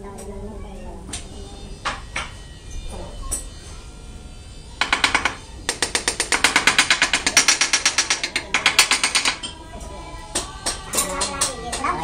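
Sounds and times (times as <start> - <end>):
rapid mechanical tool hammering: 4.8 - 9.5.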